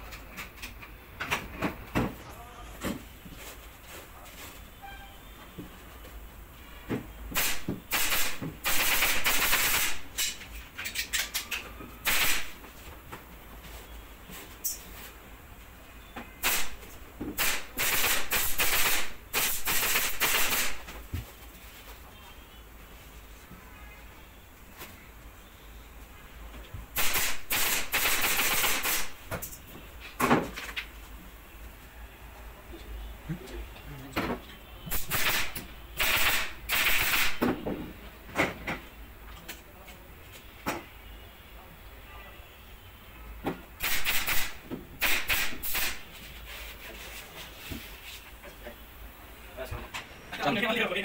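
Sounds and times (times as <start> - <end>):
pneumatic staple gun firing: 7.3 - 10.4, 12.0 - 12.5, 16.4 - 16.8, 17.4 - 20.8, 27.0 - 29.1, 34.9 - 37.5, 43.8 - 46.0.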